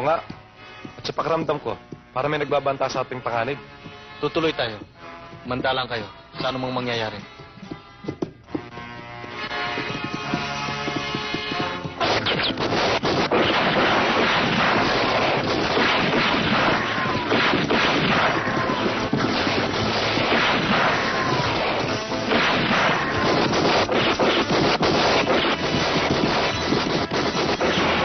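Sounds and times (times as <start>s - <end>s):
background music: 0.0s - 28.0s
gunshots and crashes: 10.9s - 28.0s.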